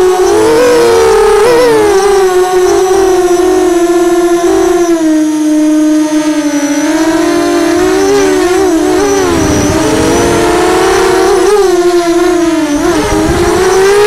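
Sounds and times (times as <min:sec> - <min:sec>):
drone motors whining: 0:00.0 - 0:14.0
low rumble: 0:08.8 - 0:13.6.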